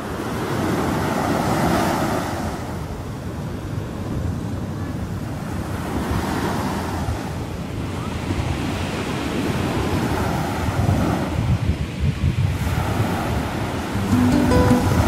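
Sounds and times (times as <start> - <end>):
small waves breaking on beach: 0.0 - 14.0
wind buffeting microphone: 2.5 - 14.0.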